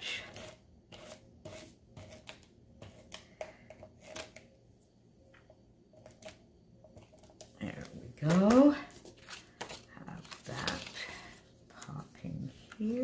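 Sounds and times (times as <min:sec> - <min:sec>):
paper rustle: 0:08.2 - 0:12.0.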